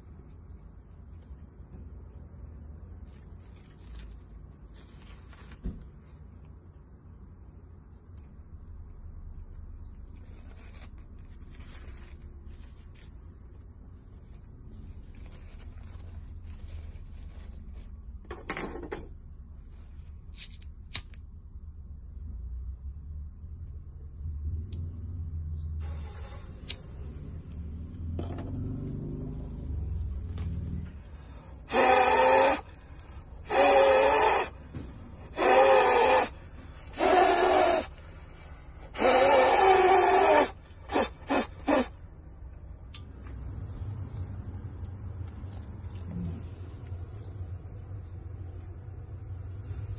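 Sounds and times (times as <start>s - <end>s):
fabric crinkling and rustling: 0.1s - 6.6s, 9.4s - 18.2s
person blowing through face mask: 31.2s - 42.0s.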